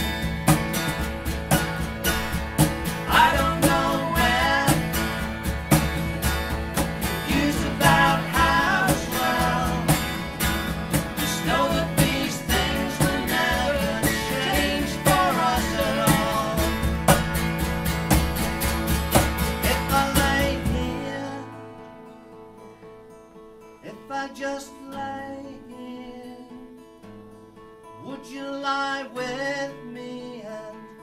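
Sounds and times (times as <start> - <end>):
strummed acoustic guitars: 0.0 - 31.0
person singing: 3.1 - 5.4, 7.0 - 17.2, 19.6 - 21.7.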